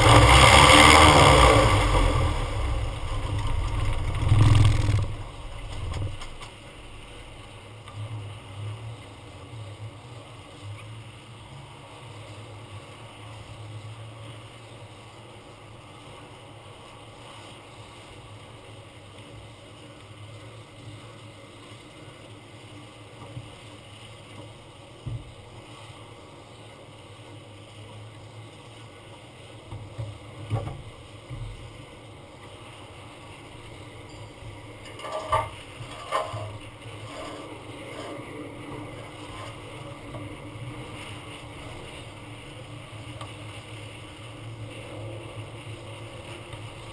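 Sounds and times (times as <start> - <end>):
low airport background rumble: 1.8 - 10.8.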